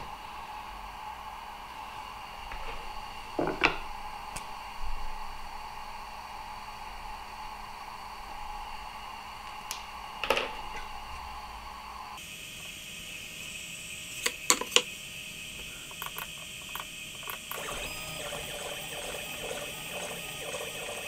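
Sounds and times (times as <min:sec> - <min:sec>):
objects knocking on wooden workbench: 0:03.4 - 0:03.8
steady hum of level tones: 0:14.9 - 0:21.0.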